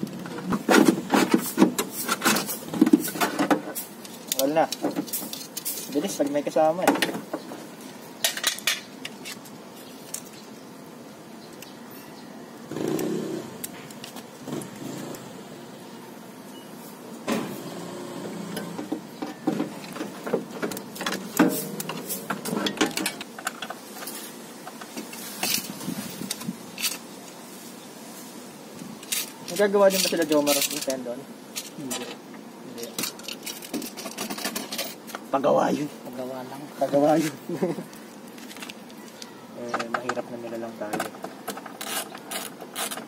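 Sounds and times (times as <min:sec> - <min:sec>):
tools and parts clinking: 0:19.2 - 0:27.0, 0:29.0 - 0:31.0, 0:32.9 - 0:35.2.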